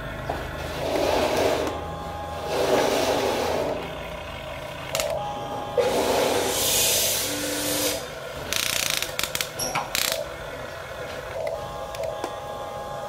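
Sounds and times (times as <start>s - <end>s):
small electric motors and gearboxes: 0.6s - 10.4s.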